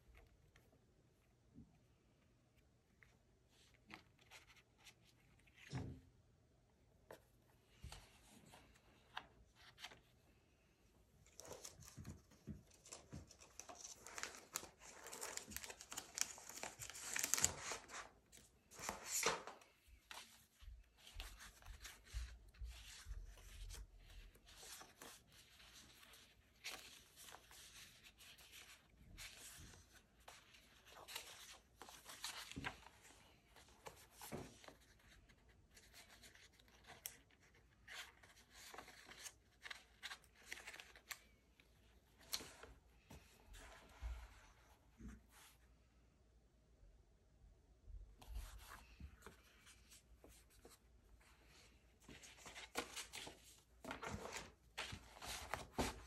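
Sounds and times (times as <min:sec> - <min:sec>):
paper rustling and crinkling: 0:11.2 - 0:44.3, 0:48.2 - 0:56.0.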